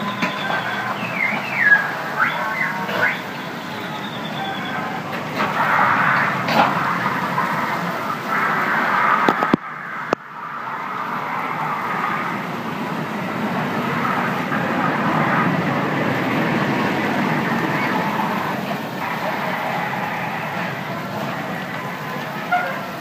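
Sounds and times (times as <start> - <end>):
kiddie ride mechanical rumble: 0.0 - 23.0
clicks: 9.2 - 10.2.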